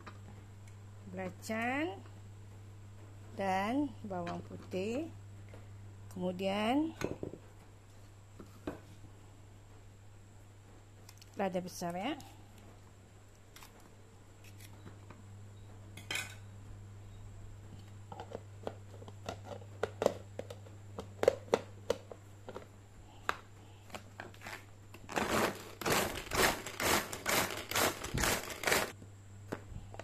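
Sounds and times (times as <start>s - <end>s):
pull-cord chopper blades whirring: 25.1s - 28.9s.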